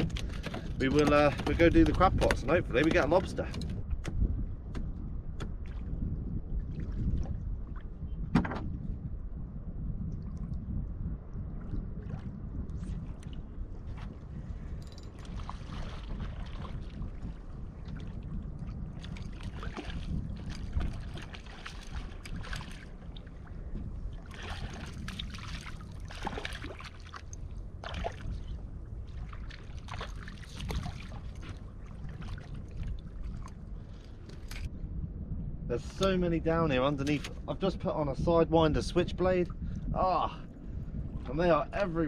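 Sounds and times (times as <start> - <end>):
water lapping against boat hull: 0.0 - 9.0, 11.4 - 34.7, 36.8 - 37.7
wind rumbling on microphone: 0.0 - 42.0.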